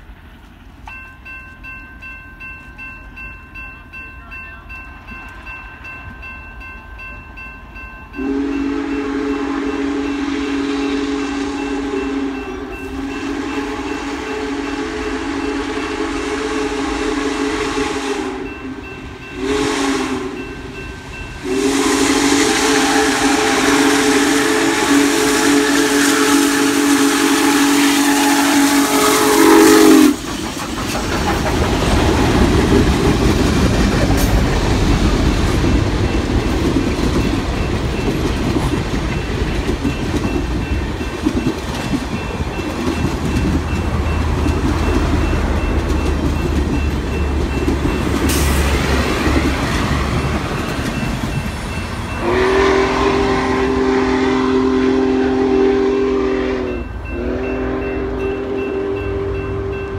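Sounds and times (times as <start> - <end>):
railroad crossing bells ringing: 0.0 - 59.9
steam locomotive whistle blasts: 8.2 - 30.3, 52.1 - 59.9.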